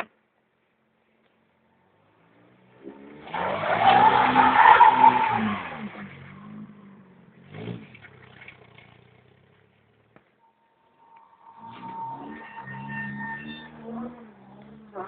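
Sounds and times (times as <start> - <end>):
car engine revving: 2.0 - 15.0
tyres spinning on snow: 3.2 - 6.8, 11.0 - 15.0.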